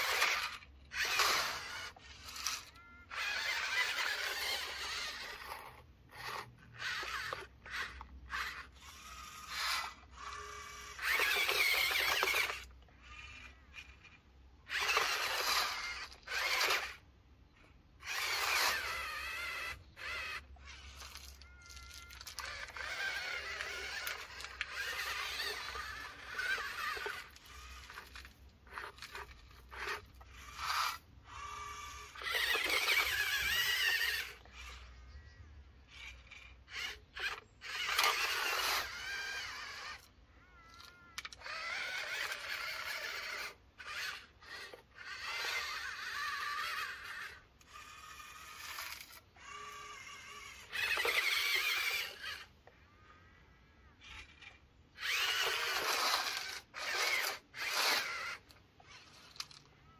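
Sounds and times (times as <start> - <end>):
small electric motors whining: 0.0 - 59.9.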